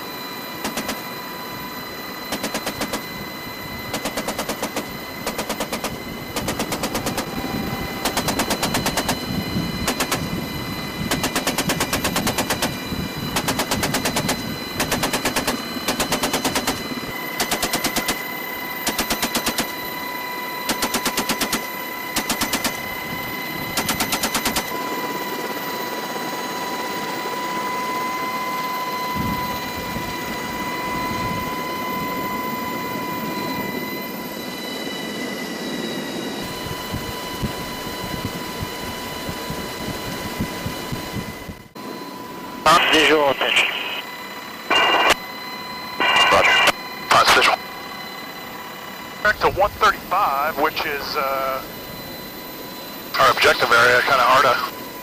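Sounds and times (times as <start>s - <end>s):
helicopter engine and rotor whine: 0.0s - 55.0s
machine gun bursts: 11.1s - 12.6s, 13.4s - 16.8s.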